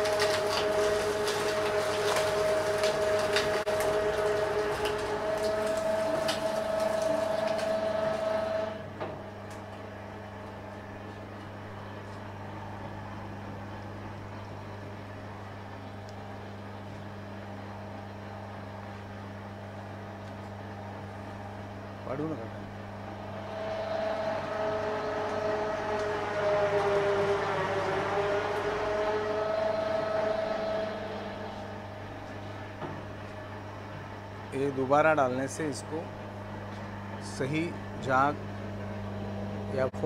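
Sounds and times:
rollers grinding sugarcane: 0.0s - 8.8s, 23.2s - 32.5s
motor running empty humming: 0.0s - 40.0s.

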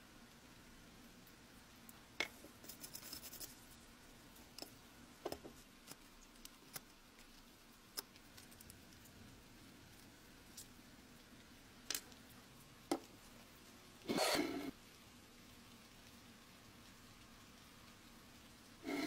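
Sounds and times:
metal tool scratching: 14.1s - 14.7s.

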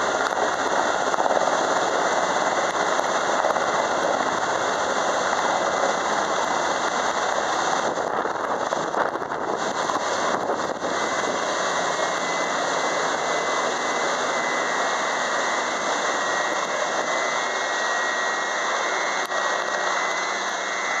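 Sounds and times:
helicopter rotor noise: 0.0s - 21.0s
high turbine whine: 0.0s - 21.0s.

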